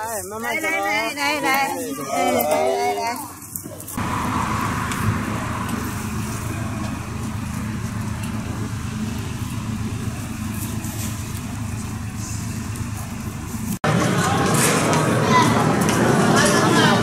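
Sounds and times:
diesel engine idling: 3.9 - 13.8.

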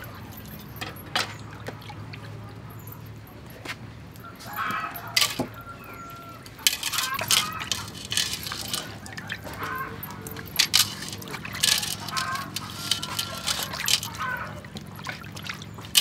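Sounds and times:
clinks on metal bowl: 0.0 - 1.9, 4.4 - 16.0
washing in water by hand: 6.2 - 16.0.

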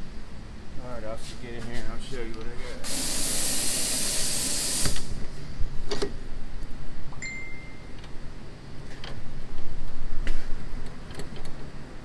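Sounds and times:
loud high hiss: 2.8 - 5.2.

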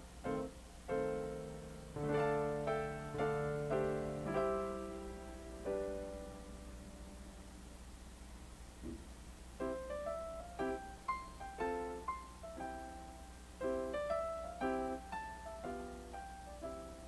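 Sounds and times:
slow piano-like keyboard melody: 0.0 - 8.2, 9.5 - 17.0.

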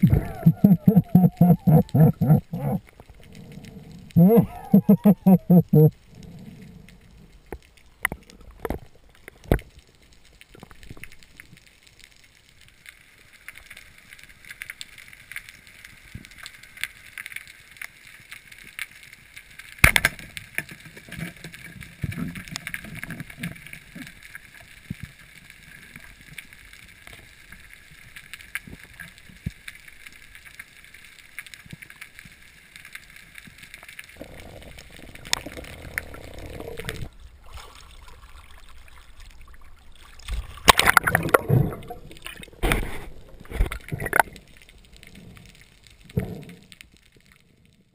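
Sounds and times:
water rushing: 0.0 - 3.0, 34.2 - 44.4
faint steady hiss: 0.0 - 47.9
underwater clicks and knocks: 40.3 - 44.4.

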